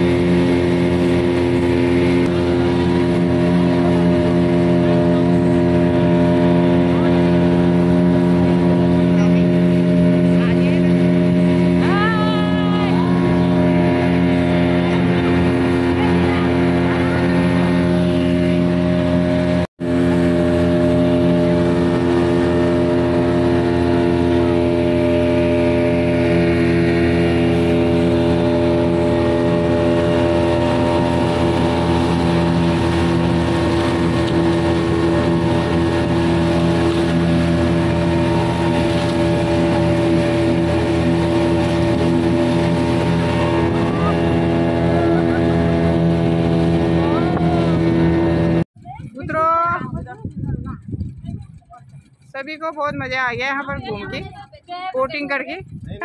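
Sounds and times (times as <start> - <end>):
motorboat engine running: 0.0 - 56.0
water rushing along hull: 0.0 - 56.0.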